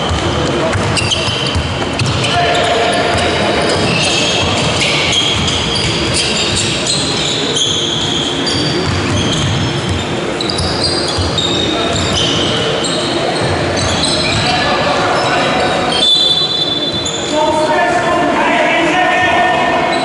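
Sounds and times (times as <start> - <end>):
shoe squeaks: 0.0 - 17.6
basketball bouncing on wooden floor: 8.8 - 10.0.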